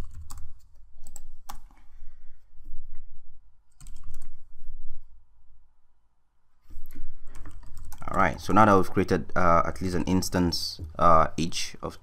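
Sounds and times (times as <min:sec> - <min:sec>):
computer keyboard typing: 0:00.0 - 0:01.8, 0:03.7 - 0:04.4, 0:07.2 - 0:09.0.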